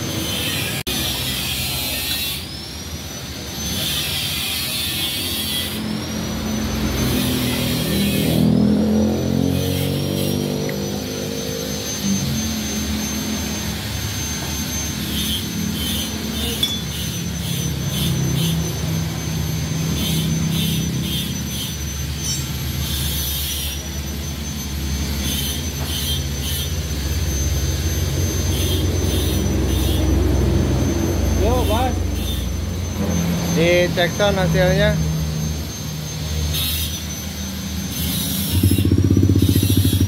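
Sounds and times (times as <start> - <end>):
high steady whine: 0.0 - 40.0
scooter engine idling: 38.0 - 40.0.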